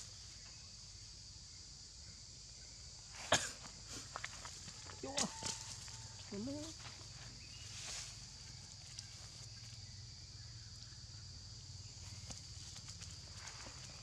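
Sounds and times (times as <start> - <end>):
dry leaves rustling: 4.5 - 9.8.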